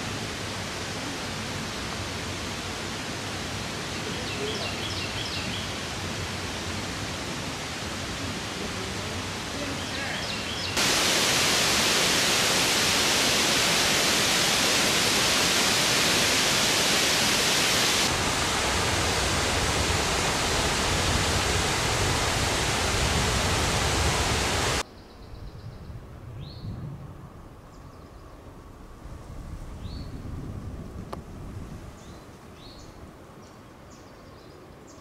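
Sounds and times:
faint outdoor background: 0:00.0 - 0:23.2, 0:24.2 - 0:35.0
loud rushing noise: 0:10.8 - 0:24.8.

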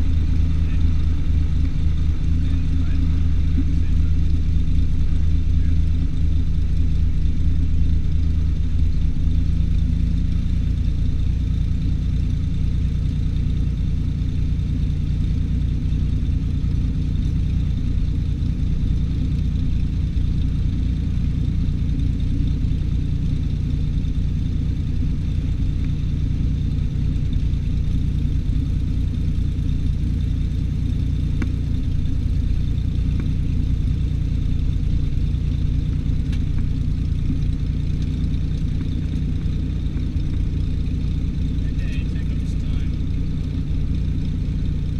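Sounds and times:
propeller plane engine droning: 0:00.0 - 0:44.9.

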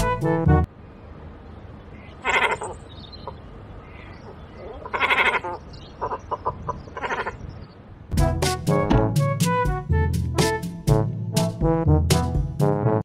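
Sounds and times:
cormorant hoarse calls: 0:02.0 - 0:07.4.

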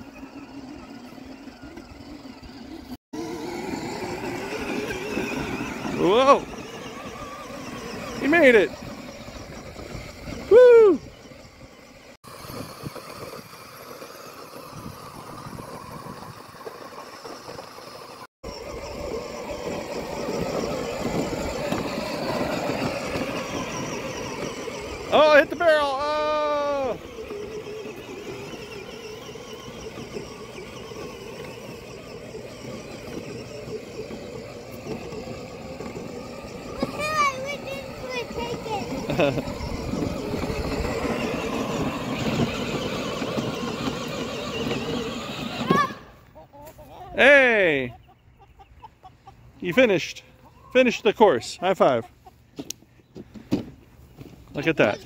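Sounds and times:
electric toy truck motor whine: 0:00.0 - 0:46.0
riding lawn mower engine running: 0:00.0 - 0:46.4, 0:47.2 - 0:55.0.

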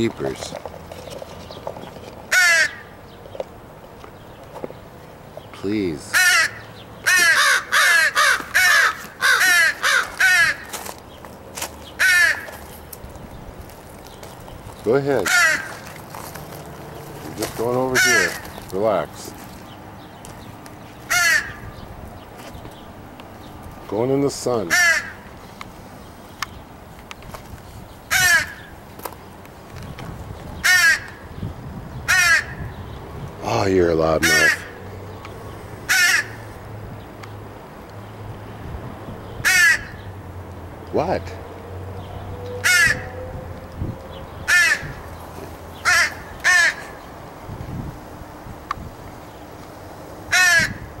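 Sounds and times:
crows cawing: 0:02.3 - 0:03.0, 0:06.0 - 0:11.0, 0:11.6 - 0:12.8, 0:15.2 - 0:16.2, 0:17.4 - 0:18.8, 0:21.1 - 0:21.8, 0:24.6 - 0:25.4, 0:28.1 - 0:28.8, 0:30.6 - 0:31.3, 0:32.1 - 0:32.8, 0:34.2 - 0:34.8, 0:35.8 - 0:36.6, 0:39.4 - 0:40.1, 0:42.6 - 0:43.2, 0:44.4 - 0:45.2, 0:45.8 - 0:47.1, 0:50.3 - 0:51.0.

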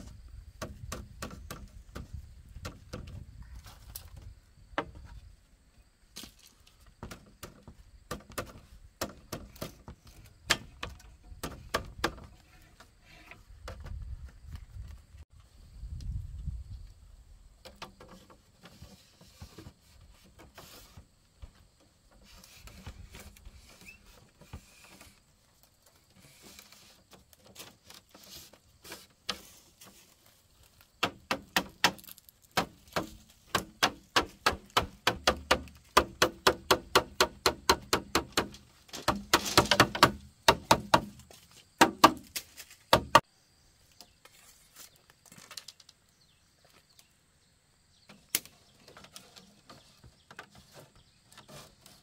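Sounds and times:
tool strikes on bamboo: 0:00.6 - 0:03.2, 0:07.0 - 0:12.3, 0:31.0 - 0:43.3.

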